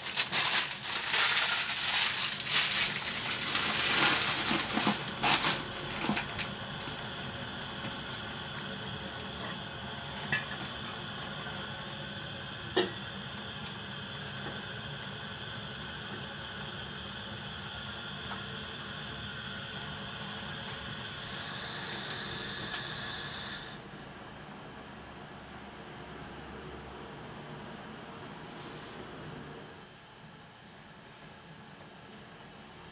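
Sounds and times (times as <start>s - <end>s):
gas burner hissing: 0.0s - 23.9s.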